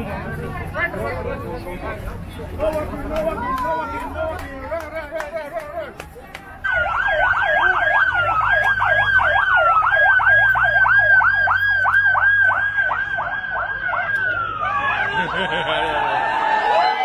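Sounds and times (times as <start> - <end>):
ambulance siren yelping: 6.6 - 17.0.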